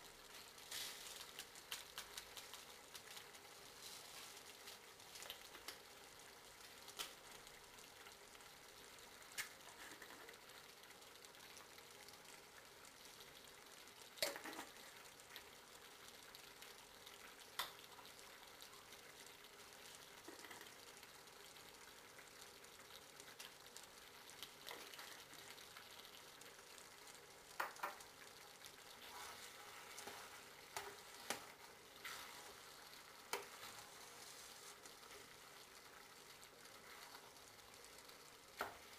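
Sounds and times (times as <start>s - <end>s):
food sizzling in saucepan: 0.0s - 38.9s.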